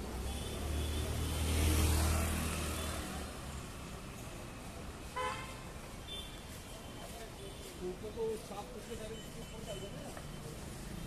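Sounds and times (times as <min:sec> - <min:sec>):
vehicle passing by: 0:00.6 - 0:04.0.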